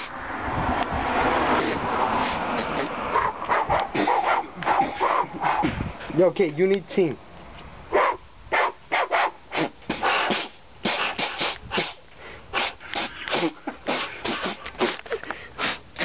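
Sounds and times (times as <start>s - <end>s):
mouth beatboxing: 1.6s - 5.8s, 9.0s - 16.0s.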